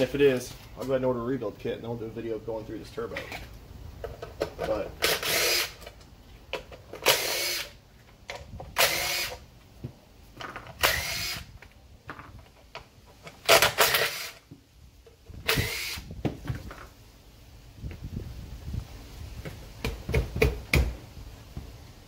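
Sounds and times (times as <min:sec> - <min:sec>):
cordless power driver whining: 0:08.7 - 0:09.4, 0:10.7 - 0:11.6, 0:13.5 - 0:14.4, 0:15.4 - 0:16.1.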